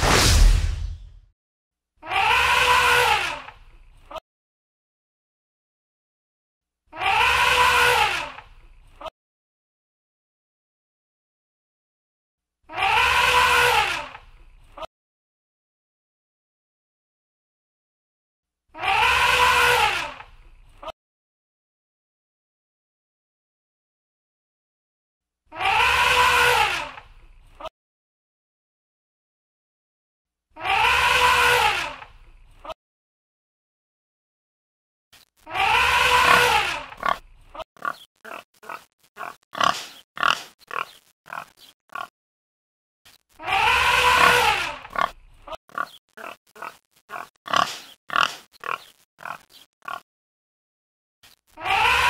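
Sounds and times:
boars grunting: 35.5 - 42.1, 43.4 - 50.0
elephant trumpet call: 43.4 - 44.6, 51.6 - 52.0.

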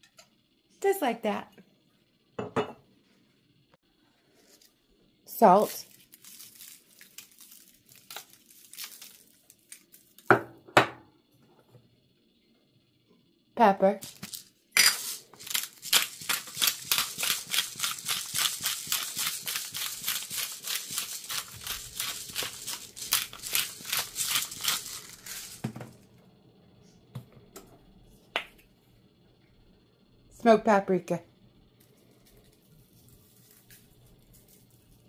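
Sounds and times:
pepper grinder crunching clicks: 14.0 - 25.6.

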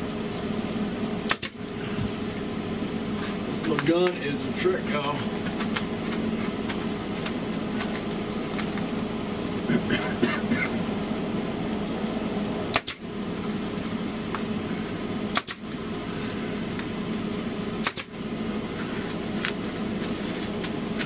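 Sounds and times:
steady machine hum: 0.0 - 21.0
air stapler firing: 1.3 - 1.6, 12.7 - 13.0, 15.3 - 15.7, 17.8 - 18.1.

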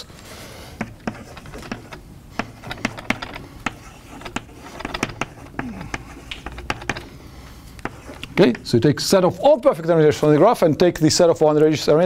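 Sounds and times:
chalk tapping on blackboard: 0.8 - 7.2, 7.8 - 8.7.

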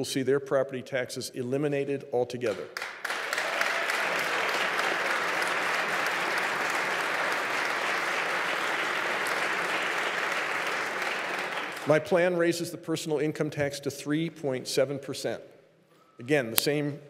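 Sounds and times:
audience applauding: 2.8 - 12.1.

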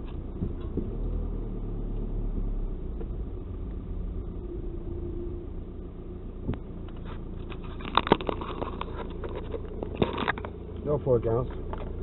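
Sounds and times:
low engine and road rumble: 0.0 - 12.0
sharp clicks and knocks: 6.4 - 12.0.

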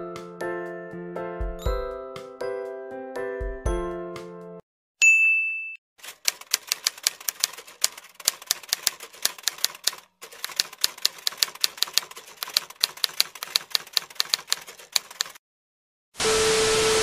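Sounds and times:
typewriter key clacks: 6.0 - 15.4.

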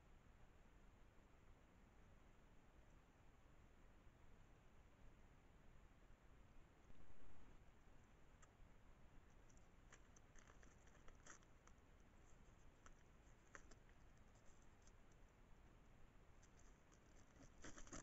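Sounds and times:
quiet hiss: 0.0 - 18.0
small clicks and scratches: 8.0 - 8.6, 9.2 - 15.4, 16.3 - 18.0.

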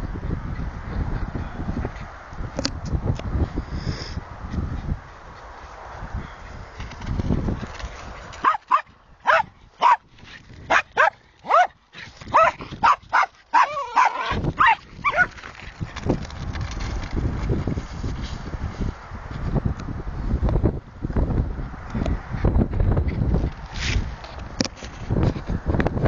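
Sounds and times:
wind rumbling on microphone: 0.0 - 26.0
dog barking: 8.4 - 10.0, 10.7 - 15.3.

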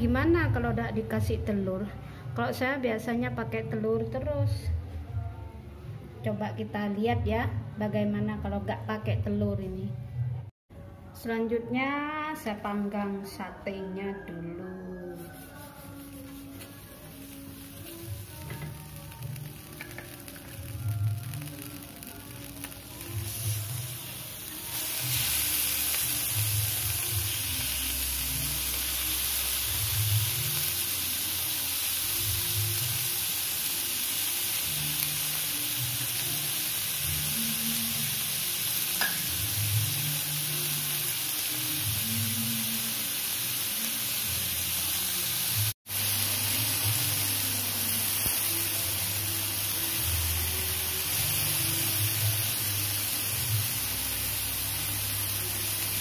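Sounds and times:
skewers sizzling on grill pan: 15.1 - 56.0.

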